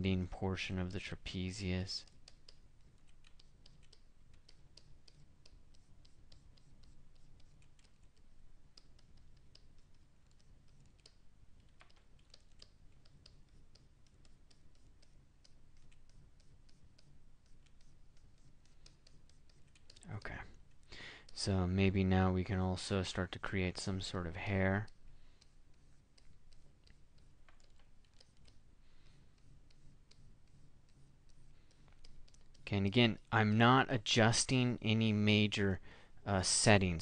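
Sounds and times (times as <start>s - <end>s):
mouse and keyboard clicking: 2.0s - 20.1s, 24.8s - 28.6s, 29.4s - 32.6s.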